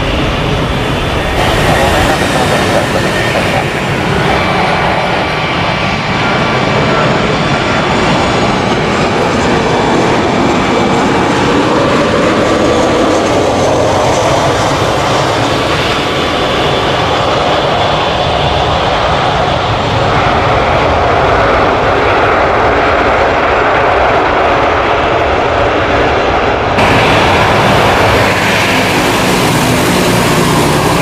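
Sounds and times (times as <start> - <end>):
jet airliner landing: 0.0 - 31.0.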